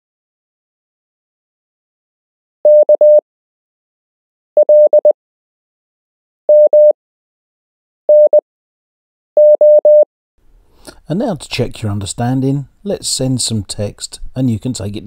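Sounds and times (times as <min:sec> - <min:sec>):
morse code beeps: 0:02.7 - 0:03.2, 0:04.6 - 0:05.2, 0:06.5 - 0:07.0, 0:08.1 - 0:08.4, 0:09.4 - 0:10.1.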